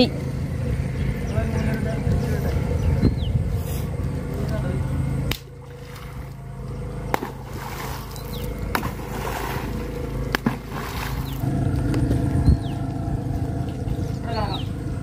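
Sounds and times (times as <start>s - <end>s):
paddle slapping water: 7.1s - 11.5s.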